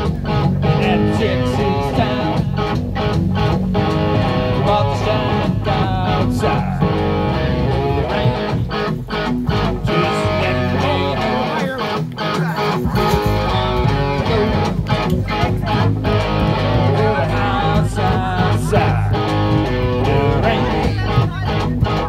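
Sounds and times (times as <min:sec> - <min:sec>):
electric bass: 0:00.0 - 0:22.0
electric guitar lead: 0:00.0 - 0:22.0
drum beat: 0:11.7 - 0:22.0.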